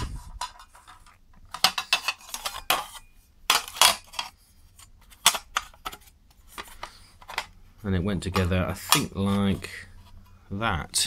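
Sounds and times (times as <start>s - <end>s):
plastic parts clicking: 0.4s - 7.6s.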